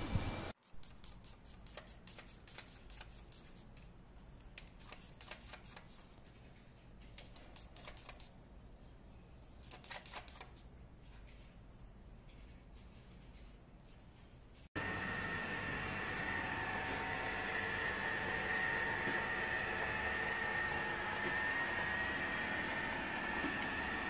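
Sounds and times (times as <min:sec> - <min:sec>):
loud sound cutting off: 0:14.8 - 0:24.0.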